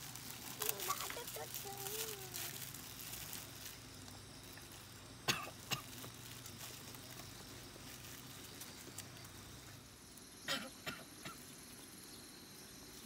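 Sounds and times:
person coughing: 5.3 - 5.9, 10.5 - 11.4.

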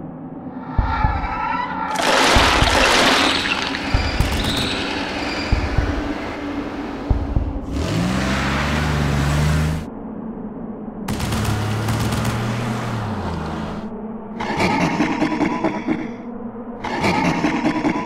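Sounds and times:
engine drone: 2.1 - 10.1, 11.1 - 14.3
low thumps: 3.7 - 7.9.

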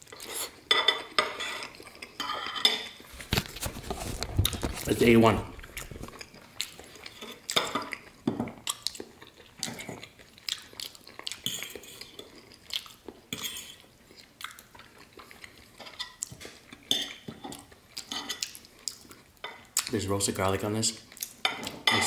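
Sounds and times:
cutlery clinking on a plate: 0.7 - 3.0, 21.4 - 22.0.

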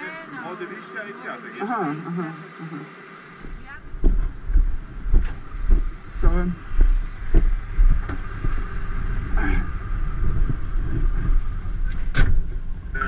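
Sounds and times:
diesel engine idling: 3.3 - 13.0
knocks and thumps in a cab: 4.0 - 8.7, 10.2 - 12.6.

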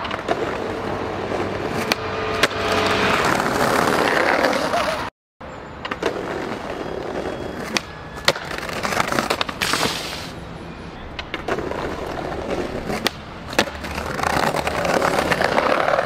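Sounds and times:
skateboard wheels rolling on brick: 0.0 - 5.1, 5.8 - 10.3, 11.1 - 16.0
skateboard clacking on ground: 5.8 - 10.0, 11.0 - 16.0.

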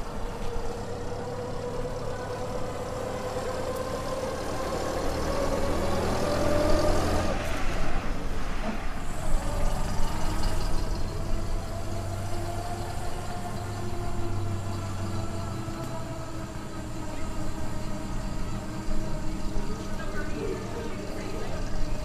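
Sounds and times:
bus engine droning: 0.0 - 22.0.

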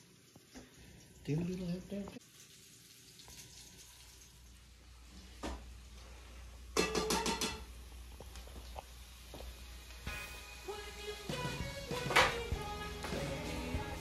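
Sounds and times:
metal cookware clattering: 6.8 - 7.8.

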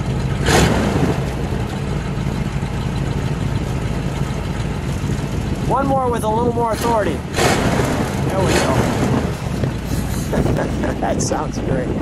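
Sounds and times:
car engine idling: 0.0 - 12.0
loud rush of noise: 5.0 - 12.0.

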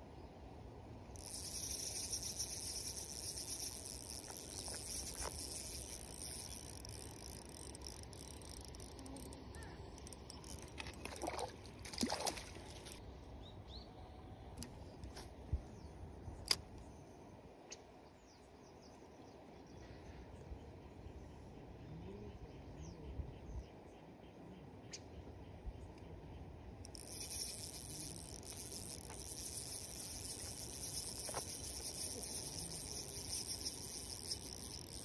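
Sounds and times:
fishing reel whirring: 1.1 - 13.0, 26.8 - 35.0
fish splashing: 10.6 - 13.0.

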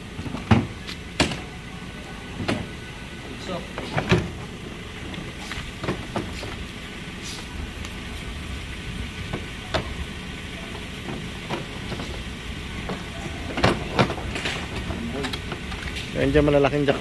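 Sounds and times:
background rumble: 0.0 - 17.0
power tools clunking on truck bed: 0.2 - 1.6, 2.3 - 2.8, 3.4 - 6.6, 9.2 - 16.5.

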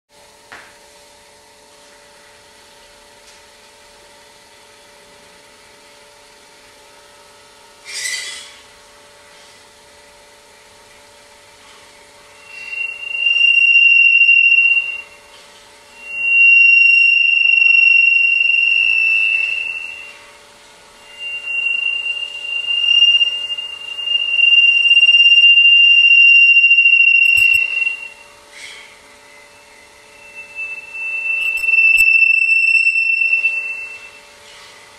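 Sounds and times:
faint steady hum: 0.2 - 34.9
high-pitched feedback whistle: 12.2 - 34.8.

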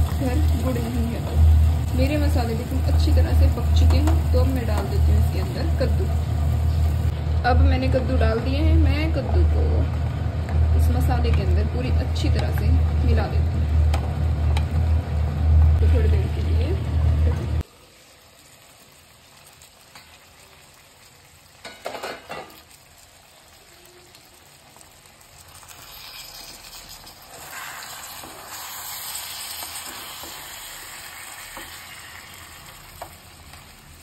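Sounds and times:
pumpkin frying in oil: 0.0 - 34.0
spoon knocking on pan: 3.8 - 5.6.

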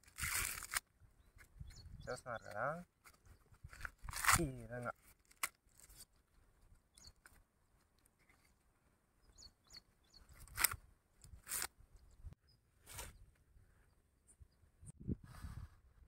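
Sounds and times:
maize husks tearing: 0.0 - 0.9, 3.0 - 6.2.

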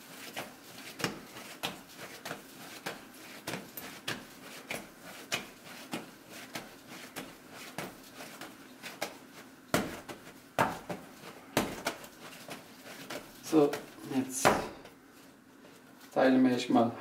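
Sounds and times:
dough thudding on counter: 9.0 - 14.8.

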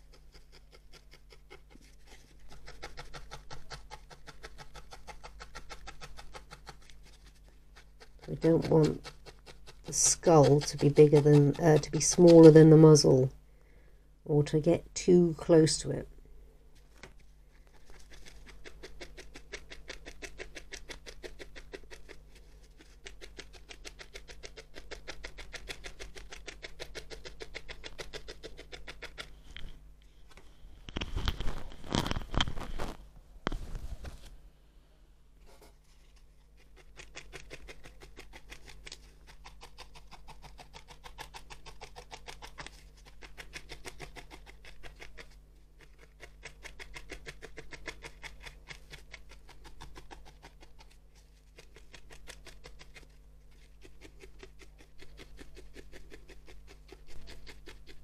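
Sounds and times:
felting needle poking wool: 0.0 - 13.4, 16.8 - 29.8, 30.4 - 34.3, 35.4 - 58.0
handling noise on desk: 29.5 - 34.4.

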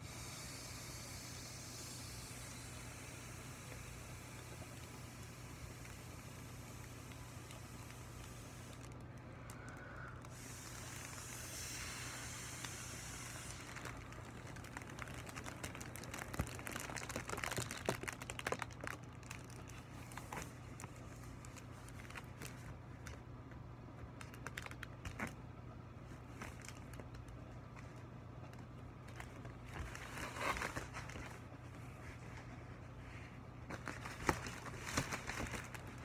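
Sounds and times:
rush of air inflating balloon: 0.0 - 8.8, 10.3 - 13.9
foil balloon crinkling: 1.6 - 25.4, 26.0 - 36.0.

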